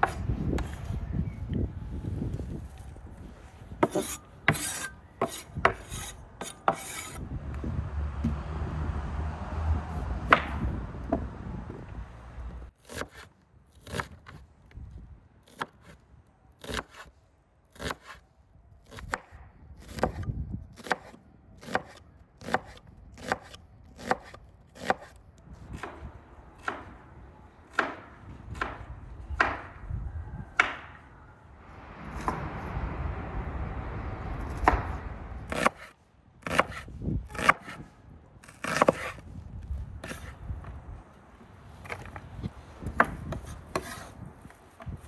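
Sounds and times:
low rumble: 0:29.9 - 0:35.7.

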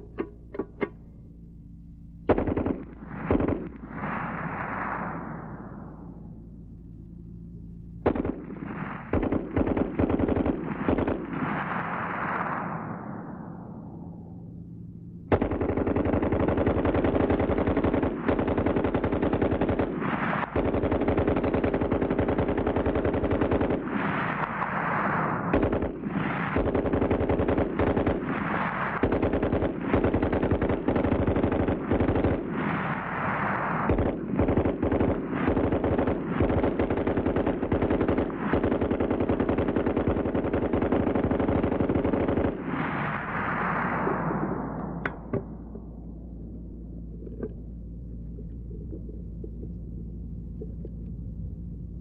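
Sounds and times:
machine gun firing bursts: 0:02.3 - 0:04.5, 0:08.0 - 0:12.5, 0:15.3 - 0:24.9, 0:25.5 - 0:43.6.

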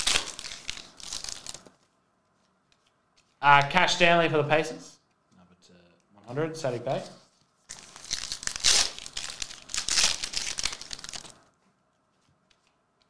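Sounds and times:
foil wrapper tearing and crinkling: 0:00.0 - 0:01.8, 0:07.7 - 0:11.4.

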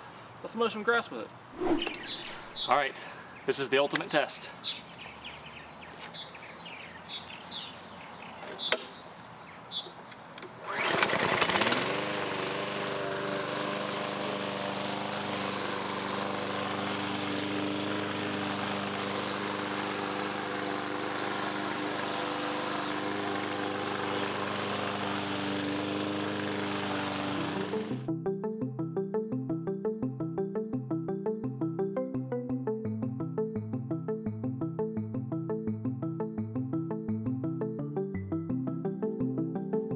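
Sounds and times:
bird chirps: 0:01.6 - 0:03.6, 0:04.6 - 0:10.0
lawn mower engine starting and running: 0:10.4 - 0:28.1.

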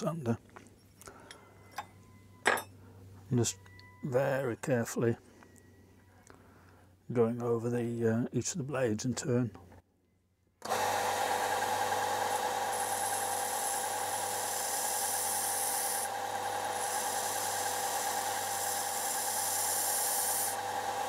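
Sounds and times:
belt sander running: 0:10.6 - 0:21.0
abrasive belt hissing on metal: 0:12.7 - 0:21.0.

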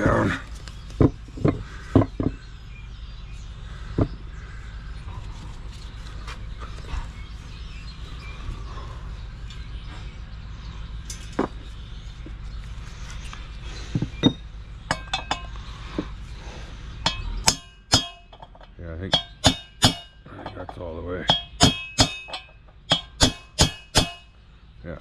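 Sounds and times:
steady low rumble: 0:00.0 - 0:25.0
metal tools clicking and knocking: 0:11.0 - 0:11.6, 0:14.2 - 0:15.6, 0:17.1 - 0:24.3
short ringing metal clinks: 0:14.2 - 0:15.6, 0:17.1 - 0:24.3.

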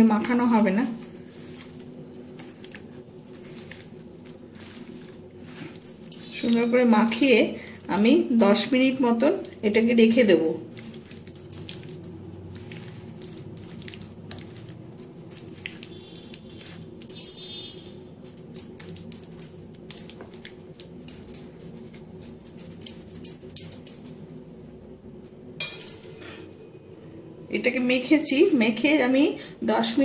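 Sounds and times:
hand squelching wet paste: 0:00.0 - 0:08.1, 0:09.3 - 0:22.0
steady low hum: 0:00.0 - 0:30.0
bangles clinking: 0:01.4 - 0:07.6, 0:09.6 - 0:24.2.

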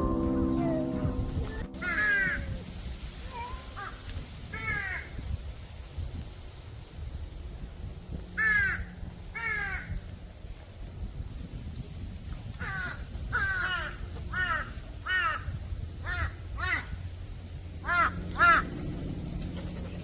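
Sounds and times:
crows cawing: 0:01.8 - 0:02.4, 0:04.6 - 0:05.1, 0:08.4 - 0:10.0, 0:12.6 - 0:17.0, 0:17.8 - 0:18.9.

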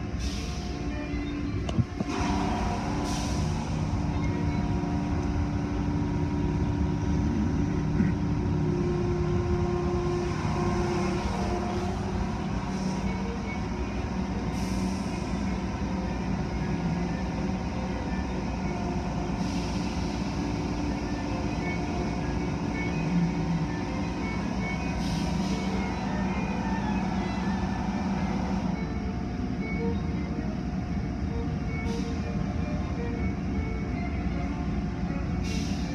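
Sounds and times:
car wash equipment running: 0:02.0 - 0:31.8
short air hisses: 0:02.1 - 0:03.9, 0:35.4 - 0:35.9.

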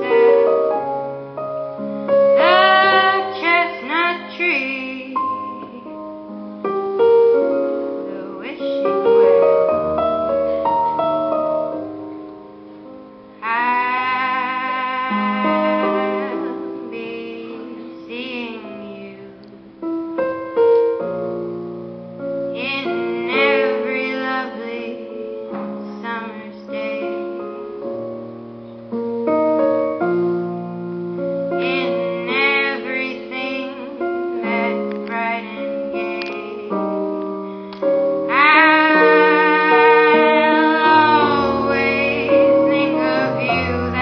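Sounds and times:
piano accompaniment: 0:00.0 - 0:44.0
woman singing: 0:02.4 - 0:06.0, 0:08.0 - 0:09.4, 0:13.4 - 0:19.4, 0:22.6 - 0:27.4, 0:31.6 - 0:36.8, 0:38.3 - 0:44.0.

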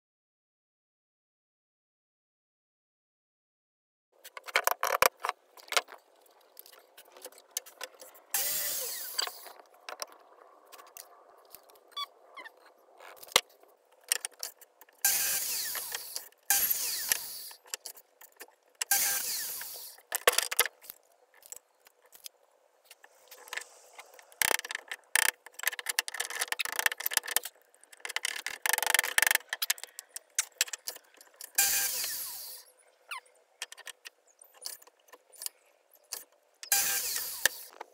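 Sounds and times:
saw cutting wood: 0:08.3 - 0:09.6, 0:15.0 - 0:17.6, 0:18.9 - 0:20.0, 0:31.6 - 0:32.6, 0:36.7 - 0:37.8.

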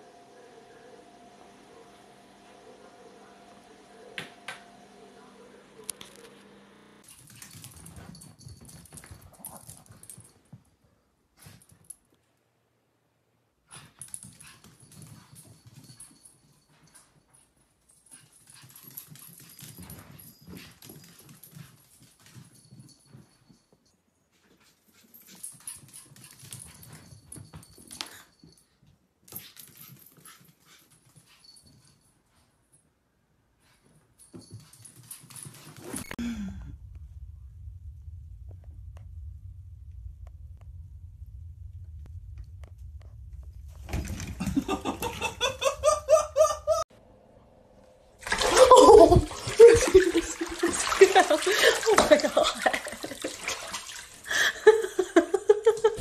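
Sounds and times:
electrical hum: 0:00.0 - 0:07.0, 0:36.2 - 0:51.8.

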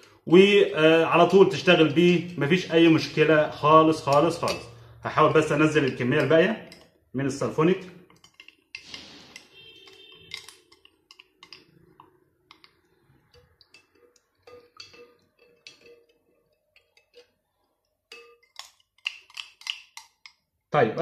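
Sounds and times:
plastic spoon scraping cups: 0:05.7 - 0:20.4.

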